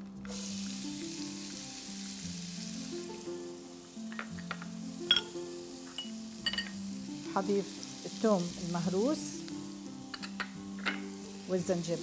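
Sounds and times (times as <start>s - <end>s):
onion sizzling in frying pan: 0.0s - 12.0s.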